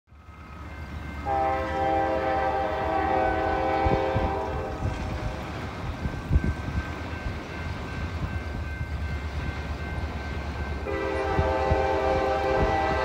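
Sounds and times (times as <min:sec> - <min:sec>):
locomotive air horn chord: 0:01.2 - 0:05.4, 0:10.8 - 0:13.0.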